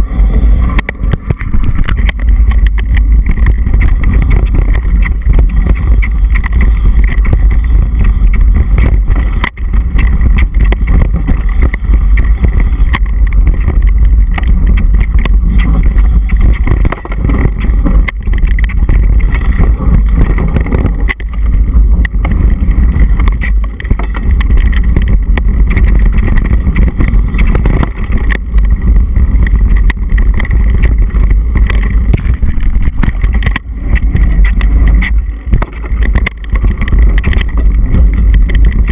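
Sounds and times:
bike knocks and rattles: 0.0s - 38.9s
wind rumble on microphone: 0.0s - 38.9s.

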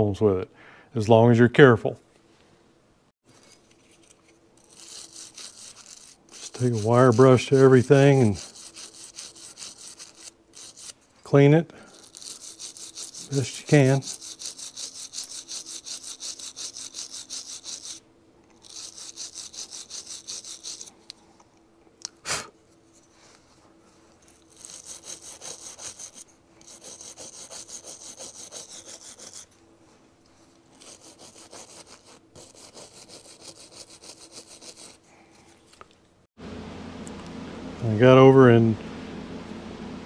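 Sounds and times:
wire brush scrubbing metal: 3.9s - 11.0s, 11.9s - 18.0s, 18.6s - 20.9s, 24.3s - 29.6s, 30.7s - 35.0s.

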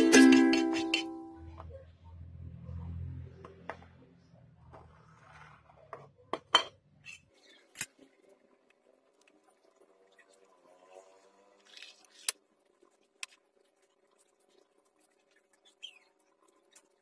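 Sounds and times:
fork clinking against ceramic bowl: 0.1s - 1.2s.

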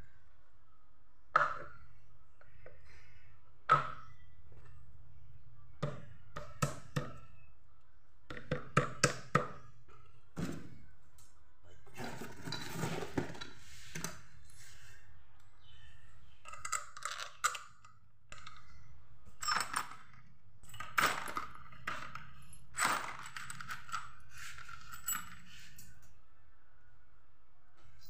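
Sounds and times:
metal bolts and washers clinking: 16.3s - 26.0s.

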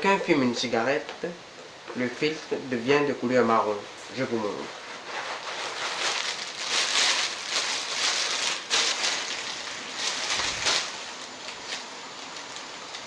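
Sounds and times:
plastic bag crinkling: 4.5s - 13.0s.

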